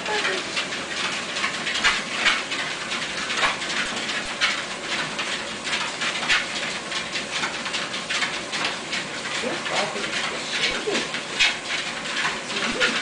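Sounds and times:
treadmill rustling: 0:00.0 - 0:13.0.

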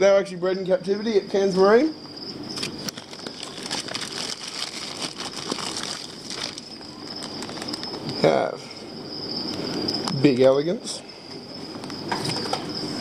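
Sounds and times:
packing paper crinkling and rustling: 0:02.6 - 0:08.1.

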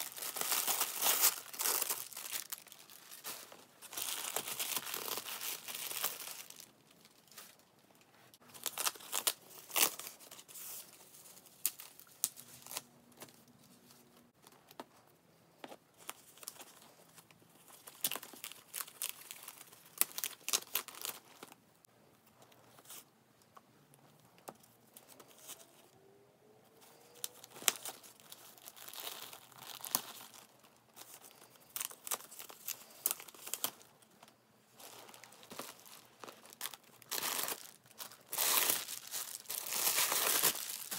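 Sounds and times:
plastic wrap crinkling and tearing: 0:00.0 - 0:07.6, 0:08.4 - 0:13.9, 0:16.0 - 0:21.6, 0:26.9 - 0:34.0, 0:34.8 - 0:40.9.

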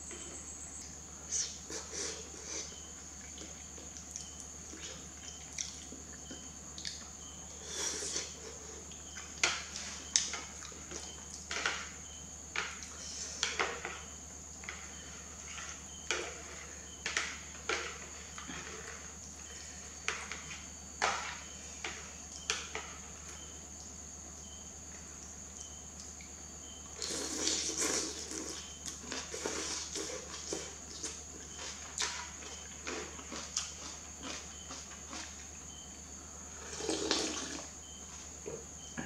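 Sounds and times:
slurping noodles: 0:27.0 - 0:31.1, 0:36.6 - 0:37.6.

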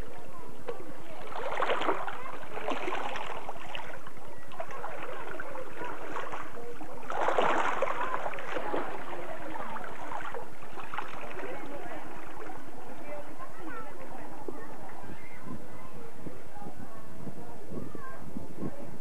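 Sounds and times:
small waves lapping on rocks: 0:00.0 - 0:14.6.

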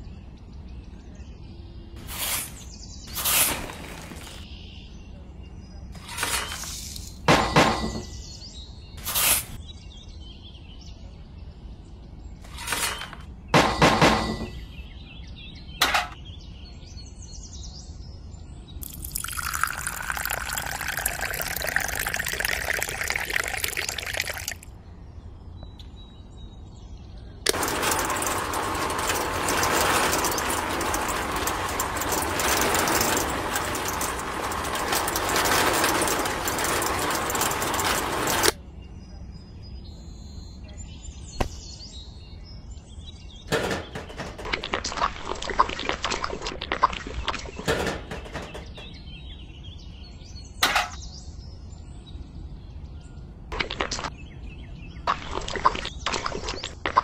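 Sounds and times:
sand and cement scraping: 0:02.0 - 0:04.5, 0:06.0 - 0:08.4, 0:09.0 - 0:09.6, 0:12.5 - 0:13.2, 0:27.5 - 0:38.6
water pouring: 0:18.8 - 0:24.6.

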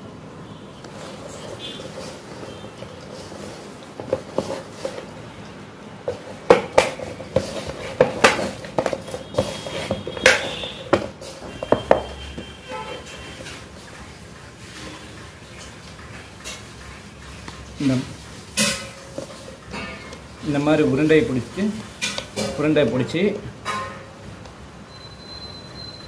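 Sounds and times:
dough knocking in a steel bowl: 0:06.0 - 0:12.6.

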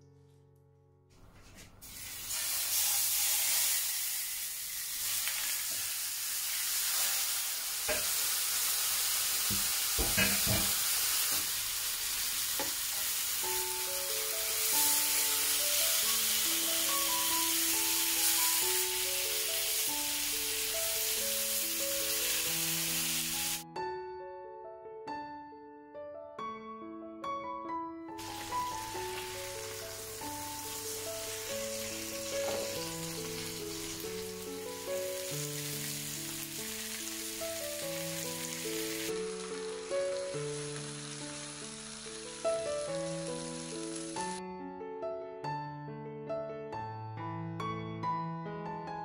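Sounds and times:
chicken sizzling in hot oil: 0:01.8 - 0:23.6, 0:28.2 - 0:44.4
knocks in grill pan: 0:09.4 - 0:11.5.

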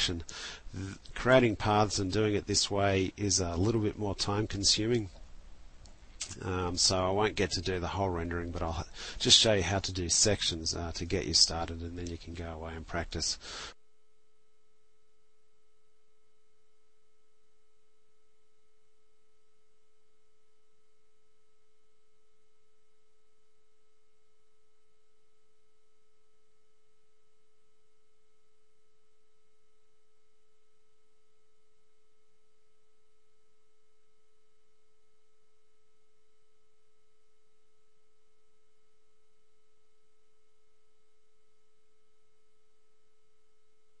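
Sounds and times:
faint steady electronic tone: 0:00.0 - 0:44.0.

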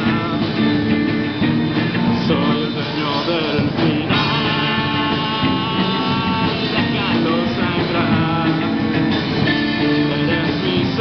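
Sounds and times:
person singing: 0:00.0 - 0:01.0, 0:02.1 - 0:11.0
drum kit: 0:00.0 - 0:11.0
electric guitars through amplifiers: 0:00.0 - 0:11.0.

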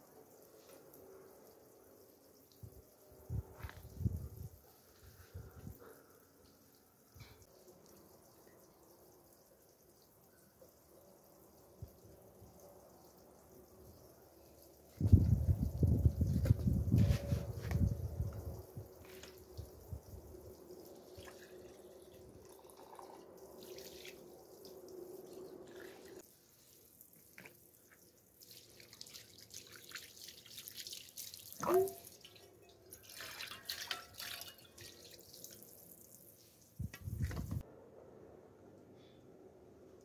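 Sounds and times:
water dripping and trickling: 0:00.0 - 0:37.6
small wet splashes: 0:20.9 - 0:36.9.

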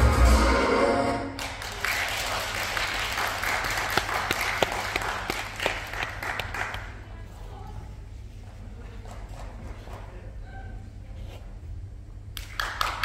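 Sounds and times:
electronic dance music: 0:00.0 - 0:01.4
audience applauding: 0:01.4 - 0:07.0, 0:12.4 - 0:13.0.

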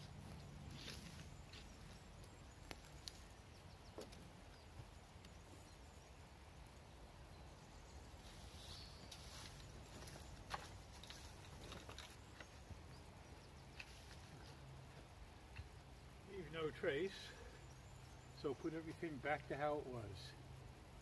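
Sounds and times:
twigs clicking and snapping: 0:00.3 - 0:04.3, 0:09.9 - 0:12.6
stick raking dry leaves: 0:08.2 - 0:12.2.

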